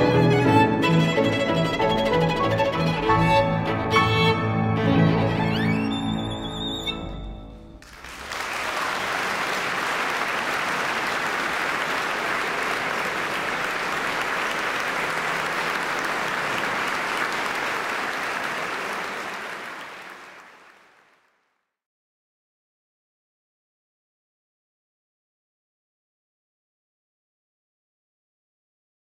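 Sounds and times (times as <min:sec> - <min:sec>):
crowd applause: 0:07.8 - 0:21.4.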